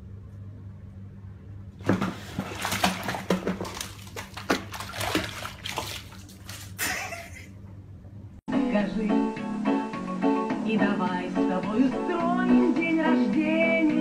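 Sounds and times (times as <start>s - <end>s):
bathwater splashing: 1.8s - 7.5s.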